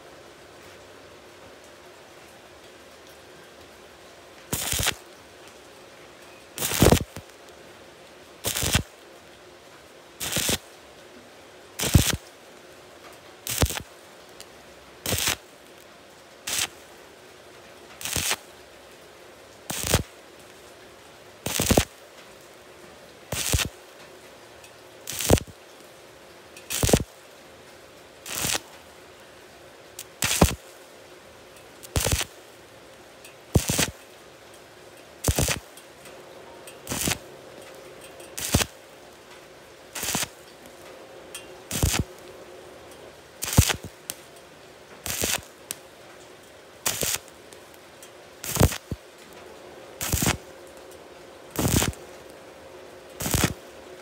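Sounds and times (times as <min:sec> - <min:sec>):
arc welding bursts: 0:04.5 - 0:05.0, 0:06.6 - 0:07.2, 0:08.4 - 0:08.9, 0:10.2 - 0:10.6, 0:11.8 - 0:12.2, 0:13.4 - 0:13.9, 0:15.0 - 0:15.5, 0:16.4 - 0:16.8, 0:18.0 - 0:18.4, 0:19.7 - 0:20.1, 0:21.4 - 0:21.9, 0:23.3 - 0:23.7, 0:25.0 - 0:25.5, 0:26.7 - 0:27.1, 0:28.2 - 0:28.7, 0:30.0 - 0:30.6, 0:31.8 - 0:32.3, 0:33.5 - 0:34.0, 0:35.2 - 0:35.6, 0:36.8 - 0:37.2, 0:38.4 - 0:38.8, 0:39.9 - 0:40.4, 0:41.7 - 0:42.1, 0:43.4 - 0:44.3, 0:45.0 - 0:45.6, 0:46.8 - 0:47.3, 0:48.4 - 0:49.0, 0:50.0 - 0:50.4, 0:51.6 - 0:52.0, 0:53.2 - 0:53.6.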